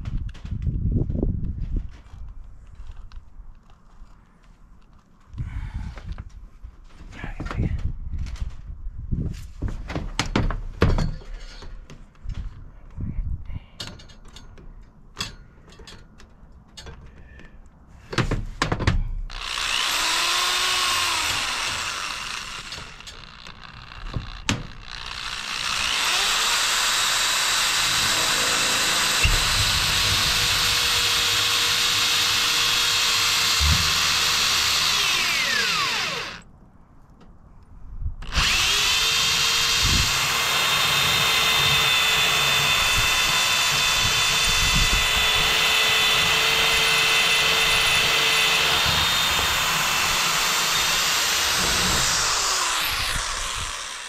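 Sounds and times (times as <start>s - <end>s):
electric drill running: 19.3s - 36.4s, 38.2s - 54.0s.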